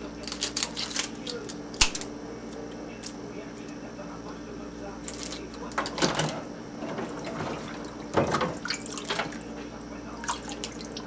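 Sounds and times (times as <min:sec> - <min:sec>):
crab shell cracking: 0:00.2 - 0:03.2, 0:05.0 - 0:05.8.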